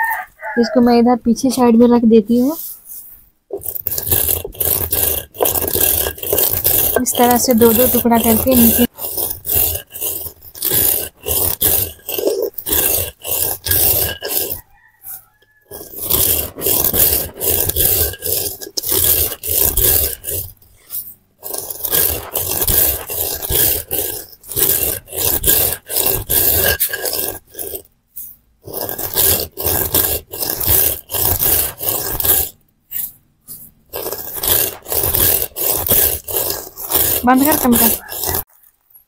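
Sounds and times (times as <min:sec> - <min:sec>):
stone roller scraping and crunching seeds: 0:00.0 - 0:39.0.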